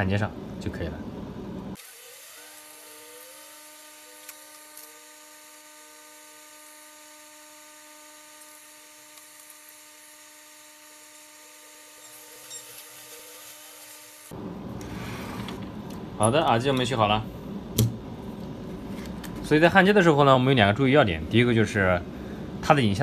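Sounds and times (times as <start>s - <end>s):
electrical whine over hiss: 0.0s - 17.7s.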